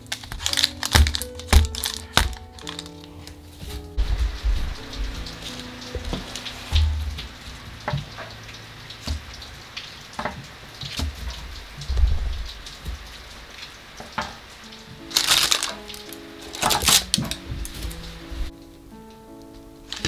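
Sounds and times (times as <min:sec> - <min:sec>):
rain patter: 0:00.0 - 0:20.0
dull low thumps: 0:03.7 - 0:08.2, 0:11.1 - 0:13.3.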